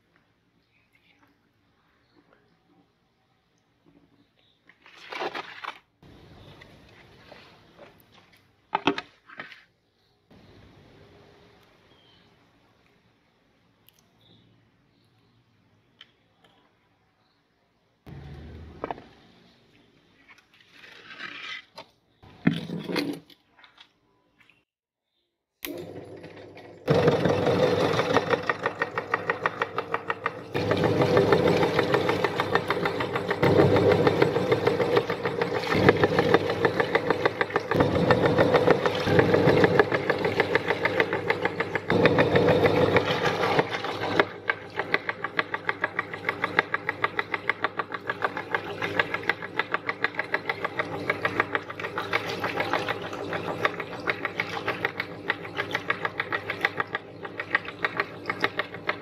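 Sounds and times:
meat grinder knocking: 26.9s - 59.0s.

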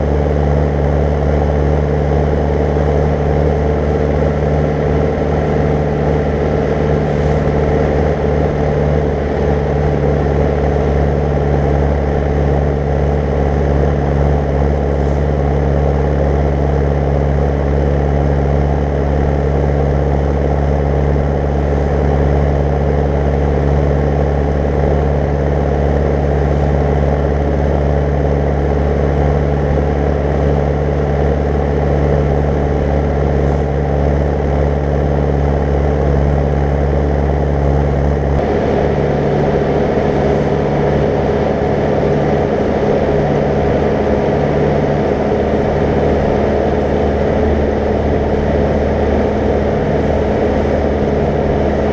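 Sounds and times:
tractor diesel engine drone: 0.0s - 51.9s.

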